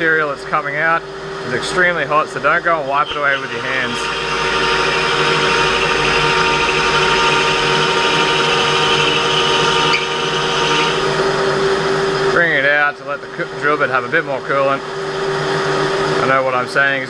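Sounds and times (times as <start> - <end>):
lathe running: 0.0 - 17.0
drill bit cutting metal: 1.3 - 12.4.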